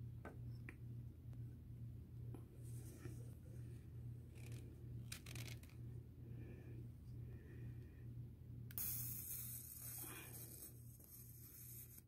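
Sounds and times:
low steady hum: 0.0 - 12.0
electric arc crackling hiss: 8.8 - 12.0.

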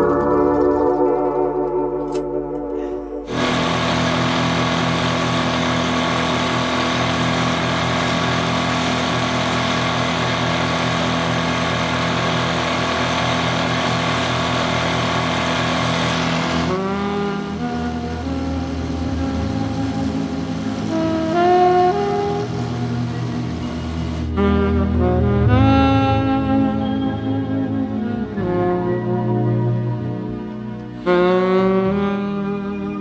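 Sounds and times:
outboard motor running: 3.2 - 33.0.

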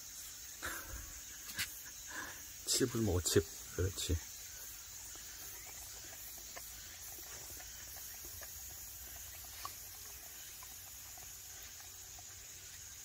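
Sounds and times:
dogs chewing wet clicks: 4.8 - 13.0.

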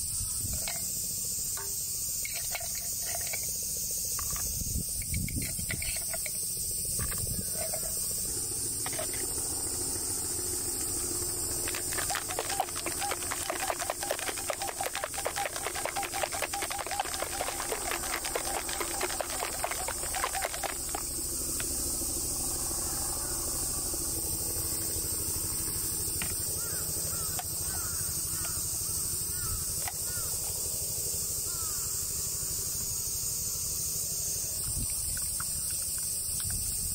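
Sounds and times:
high insect buzz: 0.0 - 36.9
ice rattling in cocktail shaker: 11.6 - 21.2.

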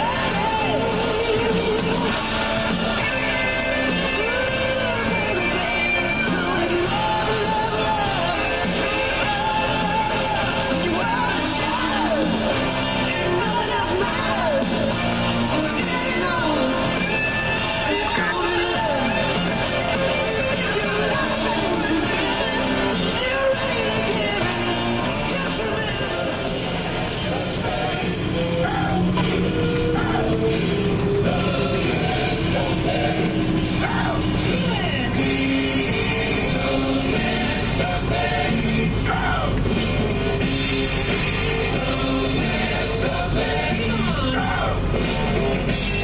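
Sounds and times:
person singing: 0.0 - 46.0
rock and roll guitar: 0.0 - 46.0.

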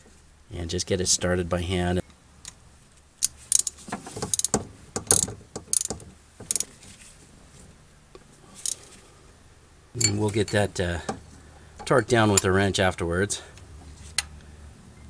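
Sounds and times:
ratchet wrench clicking: 3.2 - 6.7.

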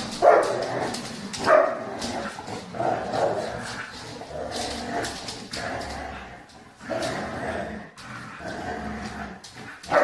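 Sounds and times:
dogs barking: 0.1 - 0.7, 1.4 - 1.9.

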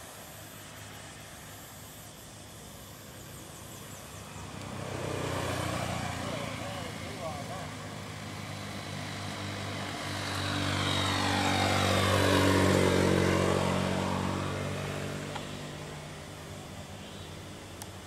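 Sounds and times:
vehicle engine running: 3.1 - 17.8
vehicle passing close by: 3.9 - 17.0.

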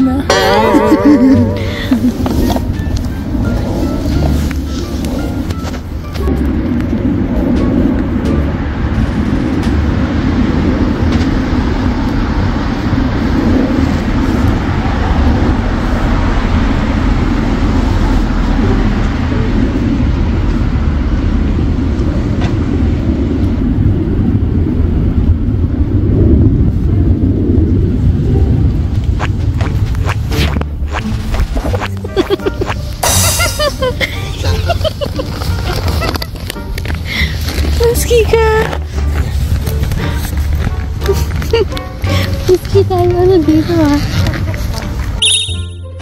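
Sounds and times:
loud low rumble: 0.0 - 45.2.

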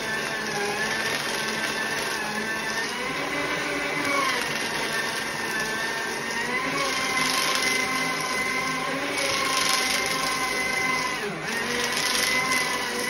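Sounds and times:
electric paper shredder running: 0.0 - 13.0.

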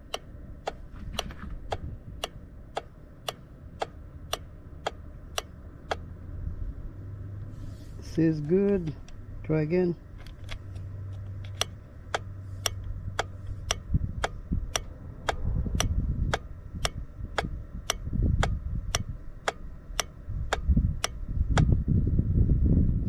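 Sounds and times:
low rumbling noise: 0.0 - 23.0.

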